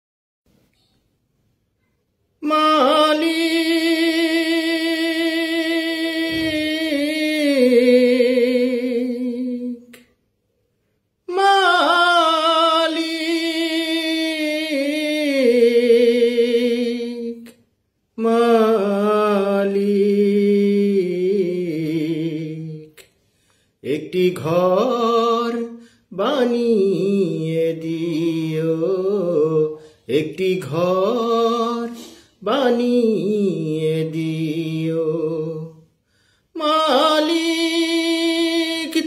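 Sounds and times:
man singing unaccompanied: 0:02.4 - 0:10.2, 0:11.2 - 0:23.1, 0:23.8 - 0:39.0
singer breathing: 0:23.2 - 0:23.8, 0:25.8 - 0:26.1, 0:29.8 - 0:30.1, 0:31.9 - 0:32.4, 0:35.9 - 0:36.6.

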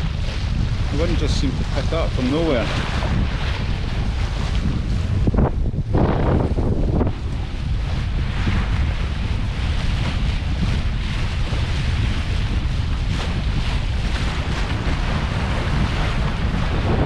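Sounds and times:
water rushing along hull: 0:00.0 - 0:17.0
wind buffeting microphone: 0:00.0 - 0:17.0.

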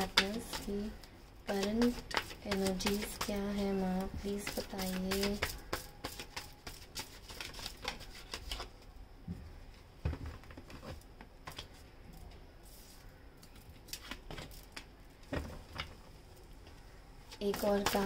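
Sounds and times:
cards being shuffled: 0:01.5 - 0:03.4, 0:04.3 - 0:08.8.

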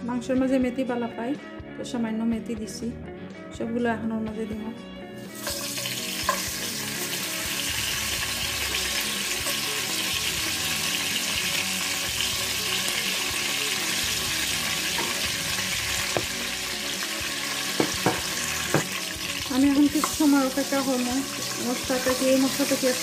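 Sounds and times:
spices sizzling in hot oil: 0:05.2 - 0:23.0.

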